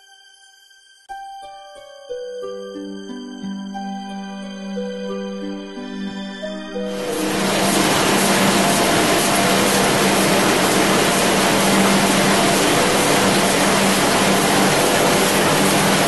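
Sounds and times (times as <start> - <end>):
printing press running: 6.9 - 16.0.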